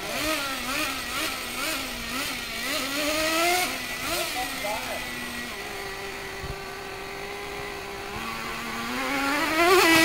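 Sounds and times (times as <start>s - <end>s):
small nitro engine whining: 0.0s - 10.0s.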